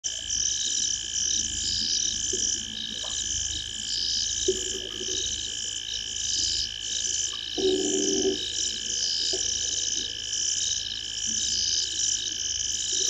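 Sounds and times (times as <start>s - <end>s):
high trilling insects and frogs: 0.1s - 13.0s
low frog croaks: 6.4s - 11.9s.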